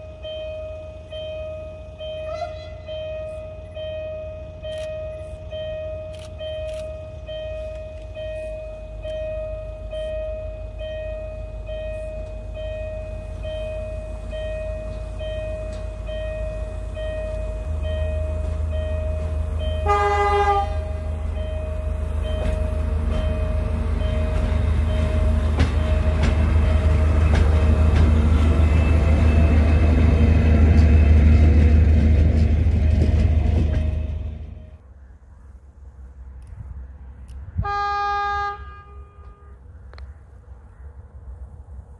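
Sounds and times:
diesel locomotive engine: 0:00.0 - 0:41.9
locomotive horn blast: 0:02.2 - 0:03.0, 0:19.1 - 0:21.4, 0:37.6 - 0:39.7.

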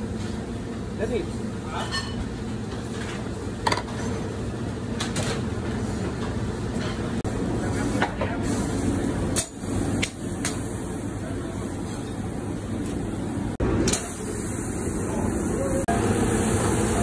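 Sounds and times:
grill and exhaust hood rumble: 0:00.0 - 0:17.0.

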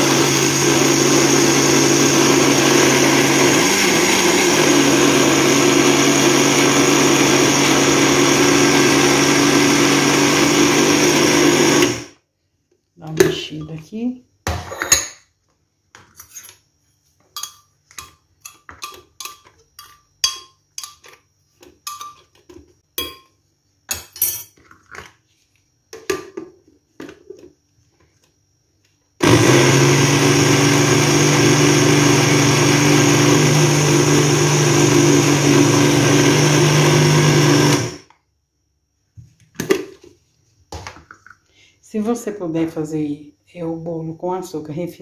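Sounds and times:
blender grinding sugar: 0:00.0 - 0:12.2, 0:29.2 - 0:38.1.

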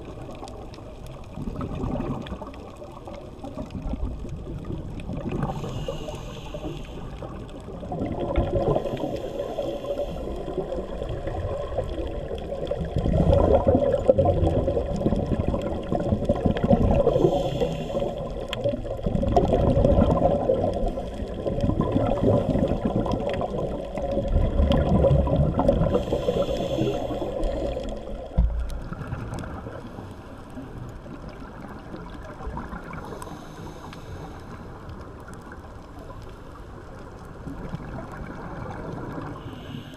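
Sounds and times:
diver's bubbles gurgling underwater: 0:00.0 - 0:33.3, 0:37.4 - 0:39.4.

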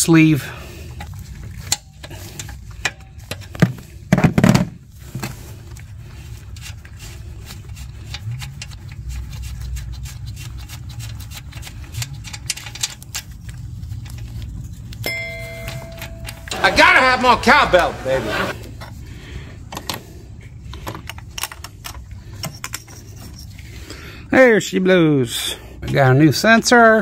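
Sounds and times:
wrench clicking and scraping: 0:00.9 - 0:03.6, 0:06.4 - 0:16.5, 0:20.7 - 0:23.8.

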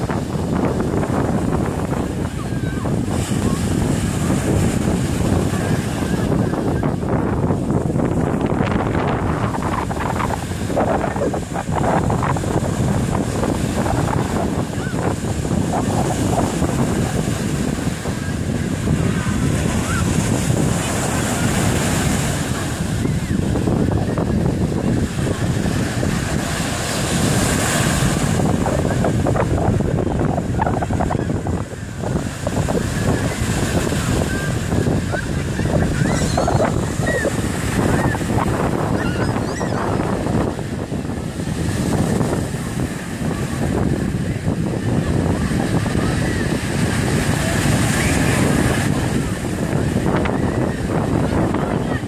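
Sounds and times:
waves breaking on beach: 0:00.0 - 0:52.0
wind buffeting microphone: 0:00.0 - 0:52.0
people calling out: 0:33.9 - 0:40.1.

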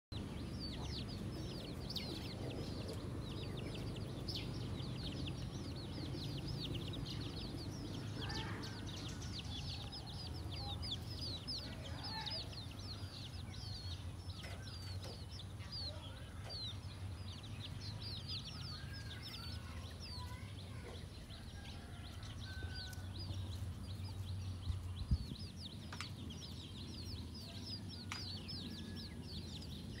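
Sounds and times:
chicks peeping: 0:00.1 - 0:30.0
hen clucking: 0:00.2 - 0:04.2
low rumble: 0:00.2 - 0:15.8.

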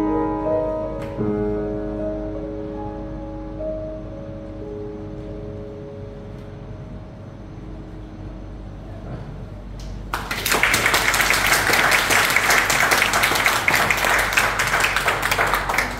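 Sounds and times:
piano chord: 0:00.0 - 0:09.3
audience applauding: 0:10.1 - 0:15.9.

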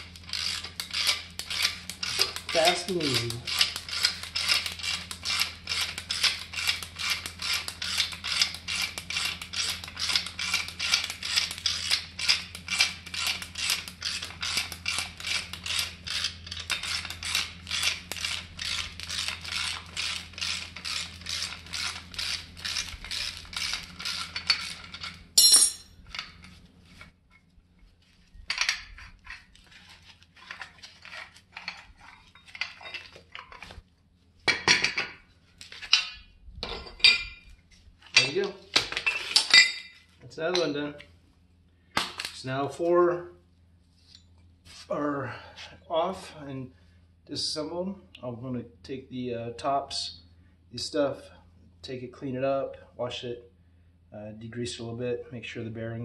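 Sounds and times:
metal parts clinking: 0:09.5 - 0:26.4, 0:30.4 - 0:33.6, 0:35.7 - 0:37.4, 0:38.1 - 0:40.6.

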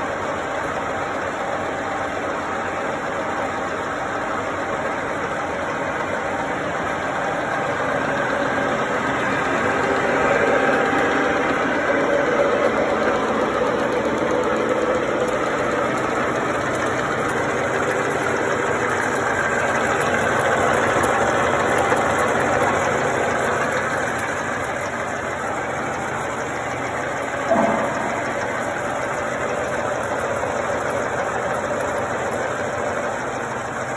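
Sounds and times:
milling machine running: 0:06.2 - 0:33.6
short knock: 0:27.5 - 0:28.7.

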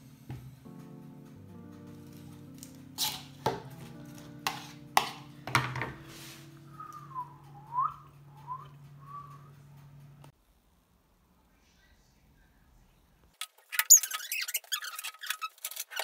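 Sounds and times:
background music with held chords: 0:00.0 - 0:10.3
fork scraping salad in plastic bowl: 0:03.0 - 0:03.3, 0:04.4 - 0:05.2
whistled tune: 0:06.5 - 0:09.8.

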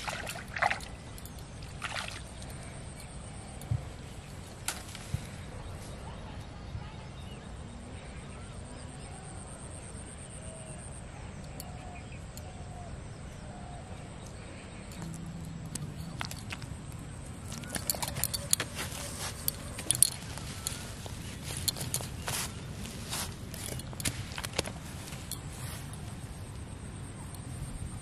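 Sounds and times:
bangles clinking: 0:14.7 - 0:28.0
hands handling near microphone: 0:17.5 - 0:26.2.

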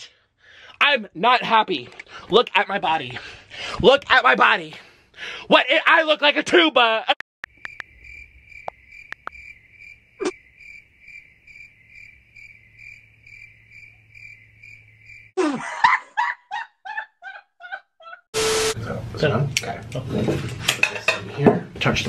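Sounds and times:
sharp taps: 0:07.4 - 0:07.9, 0:08.6 - 0:09.4
crickets chirping: 0:07.4 - 0:15.4
loud burst of noise: 0:18.4 - 0:18.8.

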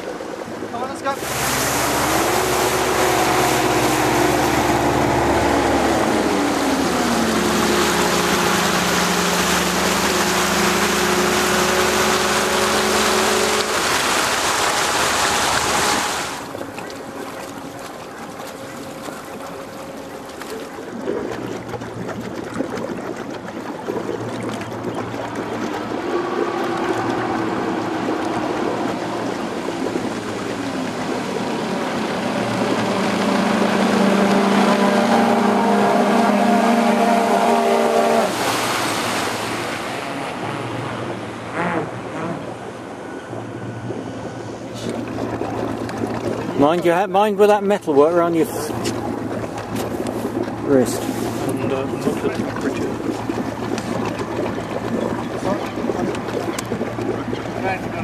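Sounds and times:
low motor hum: 0:00.0 - 0:58.0
rush of spray and wind: 0:00.0 - 0:58.0.

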